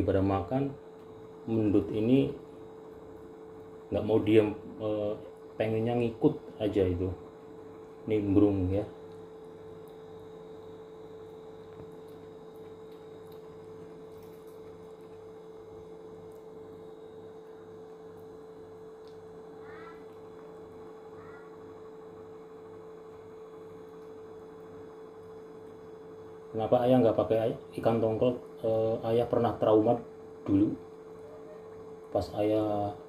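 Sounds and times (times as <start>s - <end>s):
throbbing electrical hum: 0.0s - 33.0s
faint cat mews: 19.6s - 20.1s, 21.1s - 21.7s, 31.2s - 31.8s.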